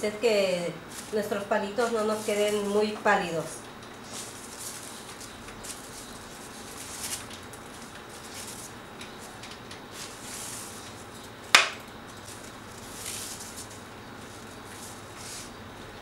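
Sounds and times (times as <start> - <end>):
crepe paper rustling: 0.8 - 15.6.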